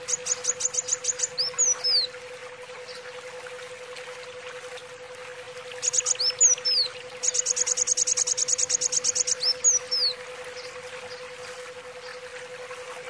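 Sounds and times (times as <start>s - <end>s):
sunbird chirping and trilling: 0.0s - 2.1s, 5.8s - 10.2s.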